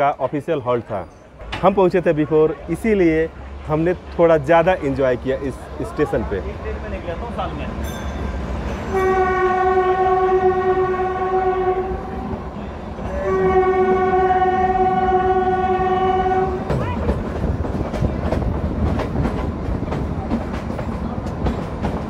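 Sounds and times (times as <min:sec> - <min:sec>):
train horn blasts: 0:08.8 - 0:12.3, 0:13.1 - 0:16.8
train wheels clicking on rails: 0:16.5 - 0:22.0.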